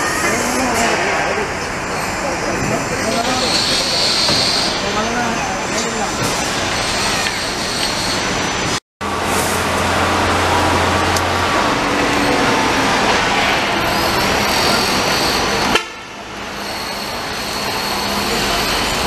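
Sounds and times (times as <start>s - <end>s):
construction machinery din: 0.0s - 19.0s.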